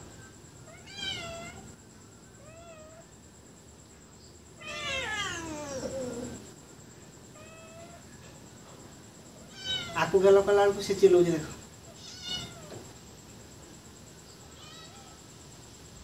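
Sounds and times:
cat meowing: 0:00.7 - 0:01.7, 0:02.4 - 0:03.0, 0:04.6 - 0:06.4, 0:07.4 - 0:08.0, 0:09.5 - 0:10.0, 0:11.9 - 0:12.8, 0:14.6 - 0:15.2.

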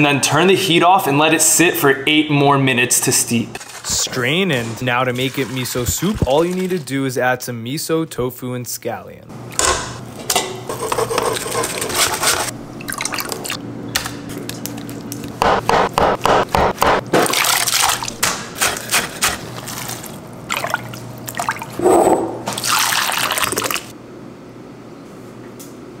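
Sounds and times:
liquid poured and stirred: 0:03.6 - 0:07.2, 0:10.7 - 0:13.6, 0:17.2 - 0:23.9
knife chopping on wooden board: 0:15.4 - 0:17.2.

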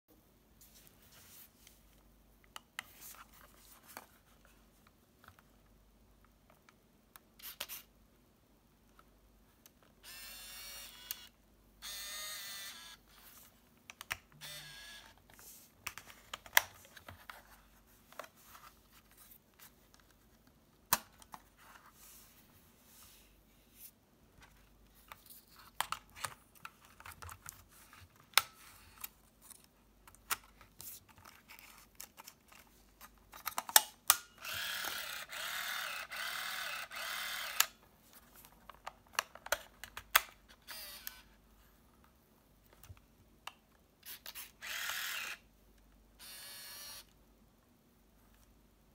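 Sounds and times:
camera film winding motor: 0:10.0 - 0:13.1, 0:14.4 - 0:15.1, 0:34.4 - 0:37.8, 0:40.6 - 0:41.3, 0:44.0 - 0:45.4, 0:46.2 - 0:47.1.

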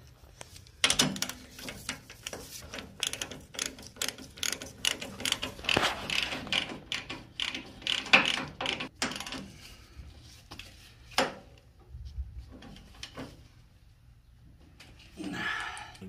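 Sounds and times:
ratchet wrench clicking: 0:03.0 - 0:05.6.

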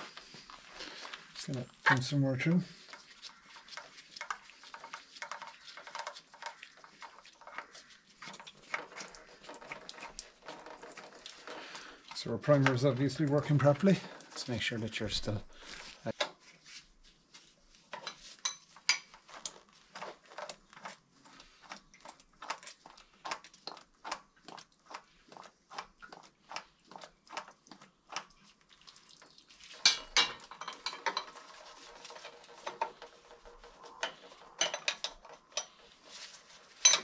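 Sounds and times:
scraping and rattling: 0:00.0 - 0:16.2, 0:29.6 - 0:37.0.

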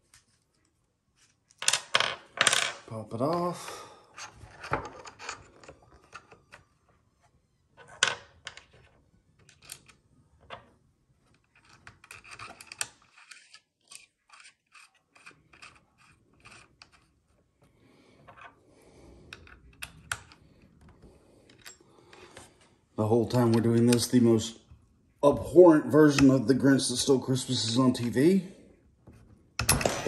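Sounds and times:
small metal clicks and scrapes: 0:11.2 - 0:17.2.

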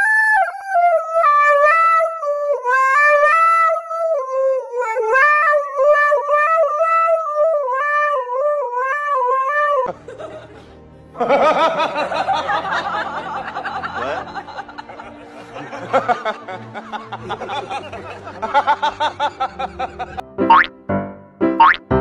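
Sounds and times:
dog howling into microphone: 0:00.0 - 0:09.9.

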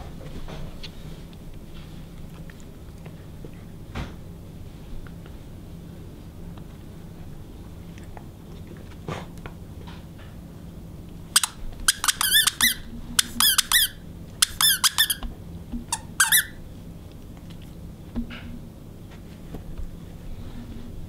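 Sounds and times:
dog toy squeaking: 0:11.4 - 0:15.3, 0:15.9 - 0:16.6.

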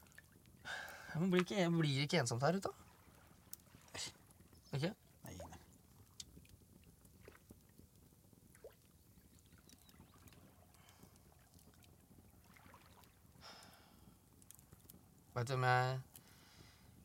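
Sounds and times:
water moving in hot tub: 0:00.0 - 0:15.3
soft short splashes: 0:08.5 - 0:13.2.

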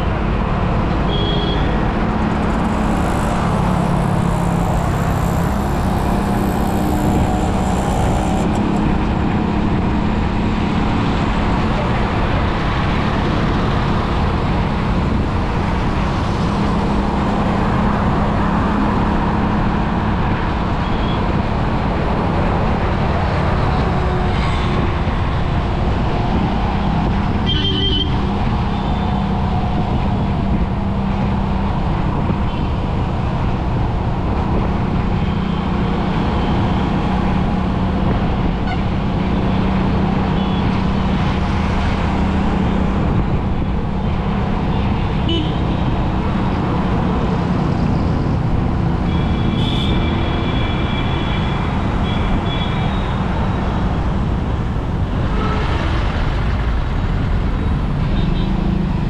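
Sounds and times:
vehicle road noise and engine hum: 0:00.0 - 0:59.0
car horn beep: 0:01.1 - 0:01.8, 0:45.3 - 0:45.6, 0:49.1 - 0:51.3.

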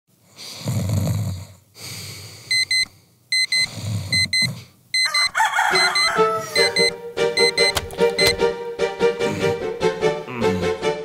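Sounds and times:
man snoring: 0:00.4 - 0:01.6
alarm clock beeping: 0:02.5 - 0:08.4.

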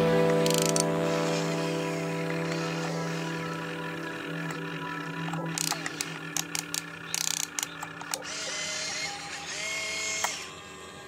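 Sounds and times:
electric motor humming: 0:00.0 - 0:11.0
sharp clicks and rattles: 0:00.3 - 0:00.9, 0:04.0 - 0:08.4.

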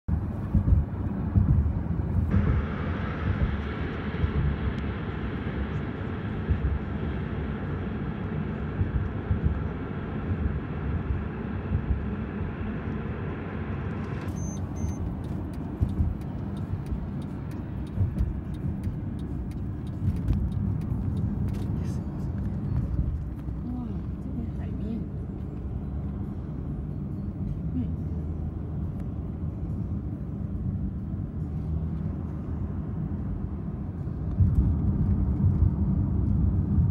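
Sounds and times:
tyre and wind noise: 0:00.1 - 0:04.7
sharp ticks and clicks: 0:14.3 - 0:23.6.

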